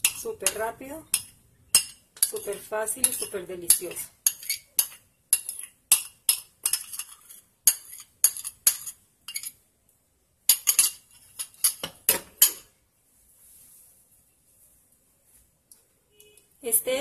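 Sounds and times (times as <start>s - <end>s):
spoon scraping and tapping bowl: 0.0s - 9.6s, 10.5s - 12.7s.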